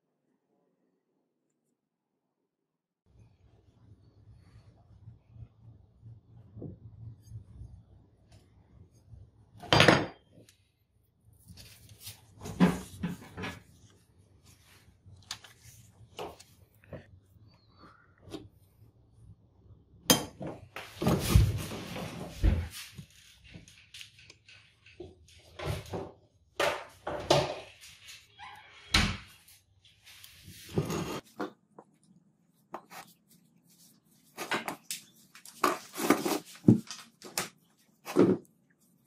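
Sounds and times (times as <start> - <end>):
paper rustling: 11.4 - 16.9, 32.7 - 39.0.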